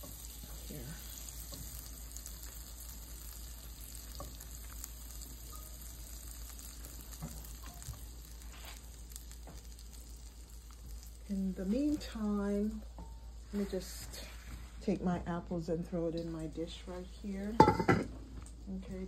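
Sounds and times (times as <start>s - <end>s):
butter sizzling in a pan: 0.0s - 15.1s.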